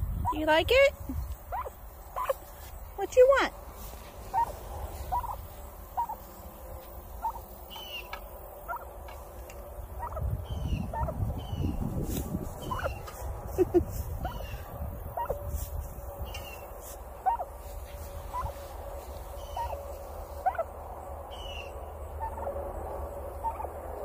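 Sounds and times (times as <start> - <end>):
turkey soft chirps: 1.5 - 2.4, 4.3 - 8.9, 10.0 - 11.8, 12.6 - 13.1, 15.2 - 15.4, 16.2 - 17.5, 18.3 - 18.6, 19.4 - 20.7, 21.3 - 22.5, 23.4 - 23.7.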